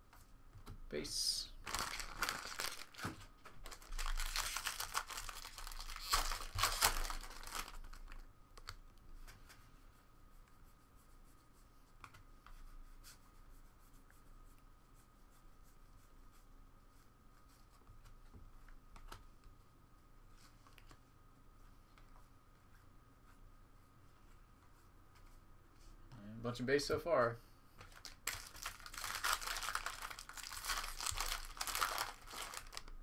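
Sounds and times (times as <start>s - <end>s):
foil wrapper crinkling and tearing: 1.6s - 8.2s, 27.9s - 33.0s.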